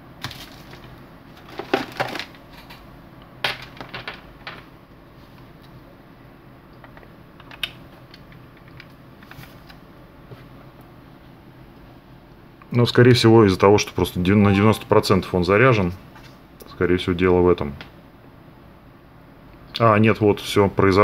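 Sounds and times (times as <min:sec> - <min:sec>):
cable rattling against desk: 0:00.2 - 0:02.8.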